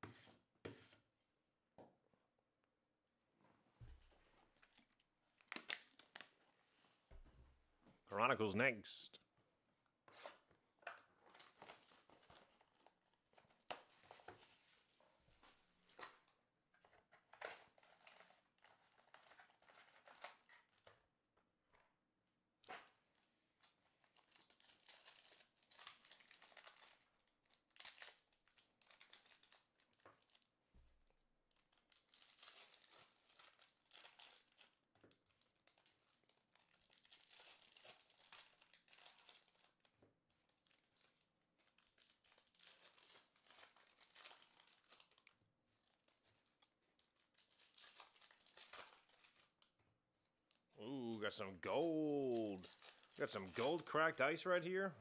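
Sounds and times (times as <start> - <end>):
card pack wrappers crinkling: 11.2 - 14.8, 24.0 - 30.5, 31.5 - 49.7, 50.8 - 54.7
wrapper tearing open: 24.0 - 30.5, 31.5 - 49.7, 52.1 - 53.9.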